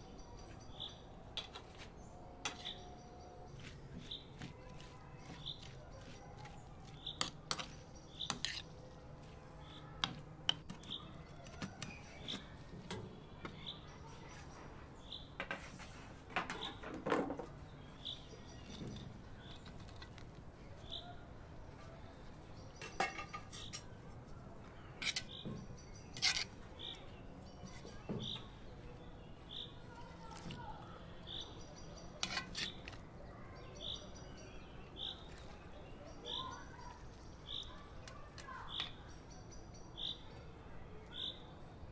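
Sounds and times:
utensils clinking and scraping: 25.0s - 25.4s, 26.0s - 27.0s, 32.2s - 33.0s
bird chirping: 30.6s - 41.5s.

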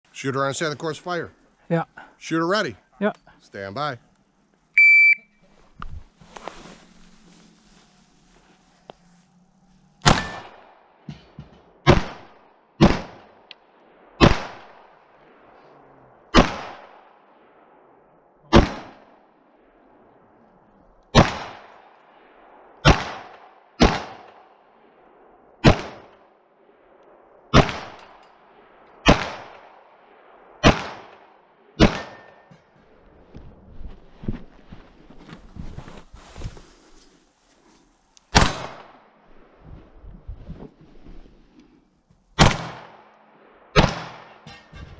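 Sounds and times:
pistol shots echoing: 10.0s - 10.7s, 14.2s - 14.9s, 16.3s - 17.2s, 18.5s - 19.1s, 21.1s - 21.9s, 22.8s - 24.5s, 27.5s - 32.5s, 38.3s - 39.0s, 42.4s - 43.1s, 43.7s - 44.4s.

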